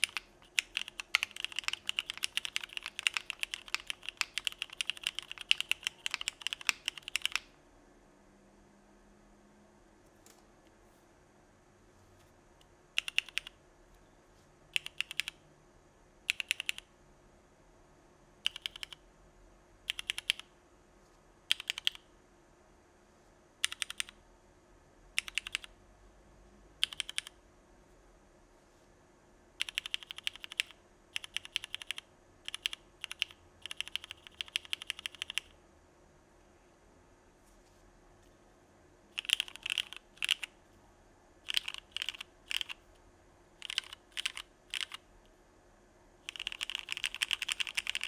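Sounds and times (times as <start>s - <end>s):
mechanical keyboard typing: 0.0s - 7.5s, 13.0s - 13.6s, 14.7s - 15.4s, 16.3s - 16.9s, 18.4s - 19.0s, 19.8s - 20.5s, 21.5s - 22.0s, 23.6s - 24.2s, 25.2s - 25.8s, 26.8s - 27.4s, 29.6s - 35.6s, 39.1s - 40.6s, 41.4s - 42.8s, 43.6s - 45.0s, 46.2s - 48.0s.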